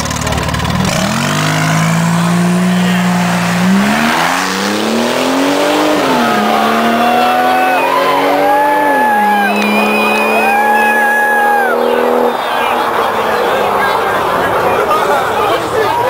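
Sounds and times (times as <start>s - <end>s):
car engine accelerating hard: 0.0s - 16.0s.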